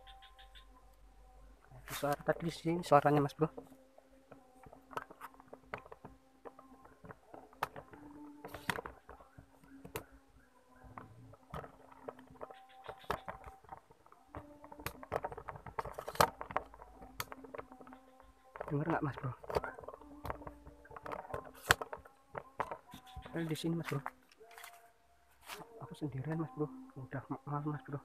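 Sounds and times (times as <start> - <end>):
twigs snapping: 10.9 - 25.7.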